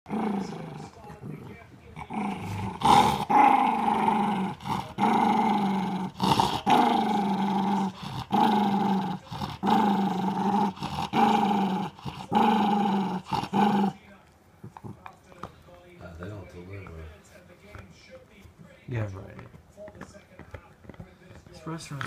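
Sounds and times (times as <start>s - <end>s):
small dog growling: 0.1s - 14.0s.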